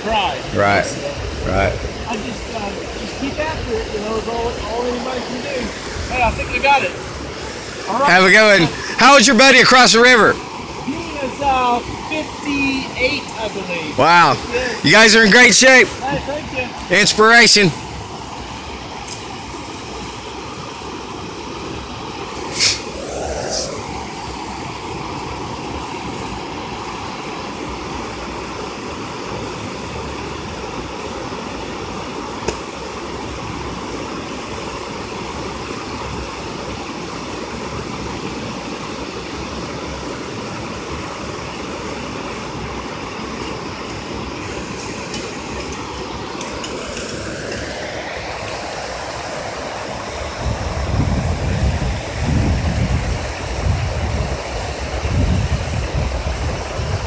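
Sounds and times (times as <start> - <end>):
river water rushing over bridge: 0.0 - 57.0
low rumbling buffets: 21.9 - 26.3.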